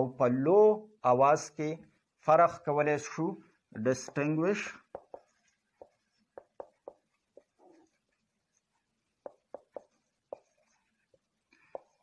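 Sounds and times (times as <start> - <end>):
marker pen writing on whiteboard: 3.5 - 12.0.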